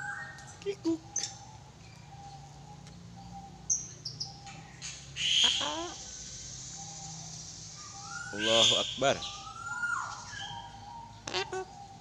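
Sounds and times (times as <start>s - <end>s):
cockatoo chirps: 3.7s - 12.0s.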